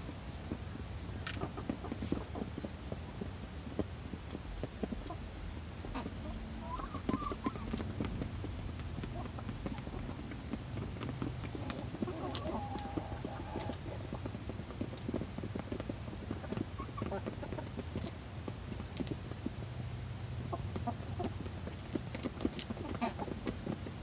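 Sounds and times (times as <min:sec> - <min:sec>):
hens pecking feed: 0:00.0 - 0:24.0
soft hen calls: 0:04.6 - 0:14.3, 0:15.8 - 0:18.2, 0:22.6 - 0:24.0.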